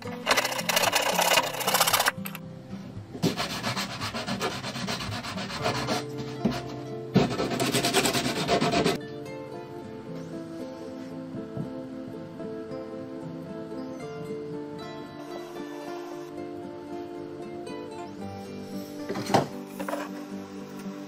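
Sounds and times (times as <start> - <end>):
background music: 0.0 - 21.0
hand saw cutting wood: 0.2 - 2.4, 3.2 - 9.0
sandpaper rubbing on wood: 3.2 - 6.6, 7.2 - 9.0.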